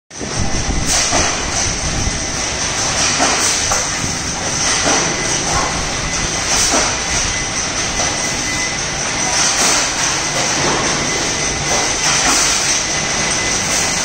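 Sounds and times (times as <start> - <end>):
metal stamping machinery din: 0.1 - 14.0.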